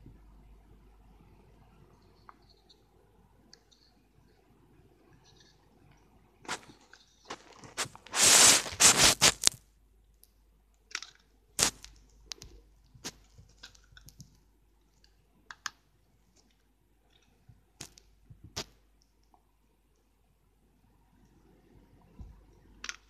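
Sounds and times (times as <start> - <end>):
toy rubbing and scraping: 6.4 - 9.6.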